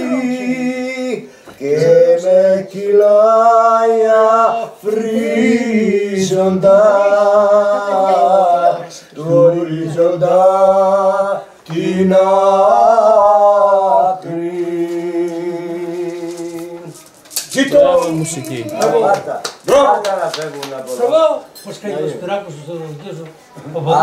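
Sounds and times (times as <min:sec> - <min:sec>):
men singing unaccompanied: 0:00.0 - 0:17.0.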